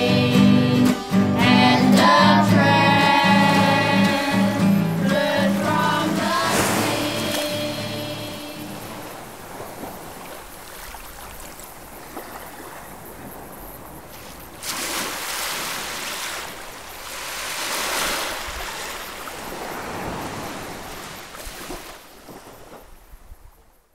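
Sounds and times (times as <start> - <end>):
waves washing up a beach: 0.0 - 23.7.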